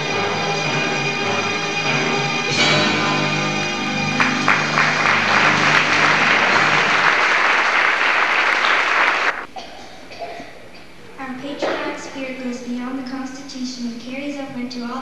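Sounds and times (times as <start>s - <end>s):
song ending on held chord: 0.0s - 7.6s
audience applause: 2.7s - 9.5s.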